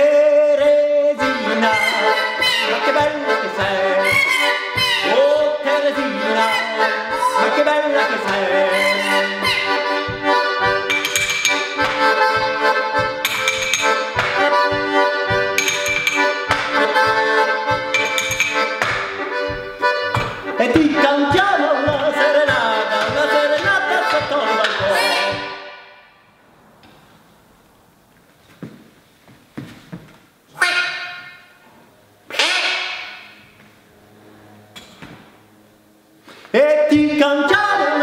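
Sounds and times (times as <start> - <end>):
button accordion playing lively tune: 0.6 - 25.8.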